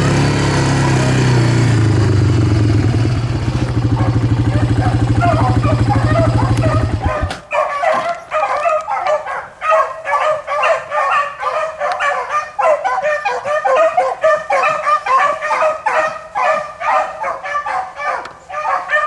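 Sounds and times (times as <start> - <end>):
beagles baying: 3.8 - 19.0.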